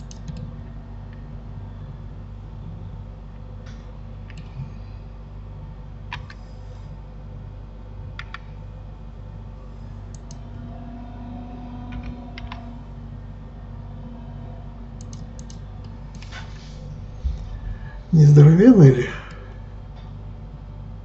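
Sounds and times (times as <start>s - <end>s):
keyboard and mouse clicking: 0.0s - 0.5s, 4.3s - 4.5s, 8.2s - 8.4s, 10.1s - 10.4s, 12.0s - 12.6s, 15.0s - 16.3s
steady low hum: 0.0s - 21.0s.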